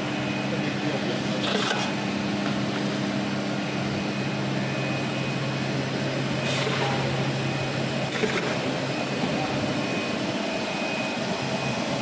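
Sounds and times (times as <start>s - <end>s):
constant low hum: 0.0s - 12.0s
drone of motors and blowers: 0.0s - 12.0s.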